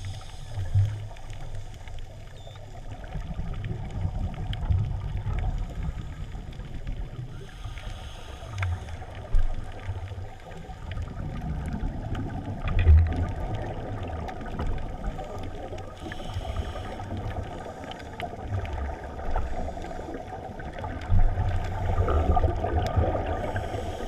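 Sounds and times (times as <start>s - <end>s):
regulator hissing inhale: 0.0s - 0.7s, 7.3s - 9.4s, 15.2s - 18.3s, 19.4s - 20.6s, 21.4s - 22.4s, 23.2s - 24.0s
rumbling exhaled bubbles underwater: 0.0s - 24.0s.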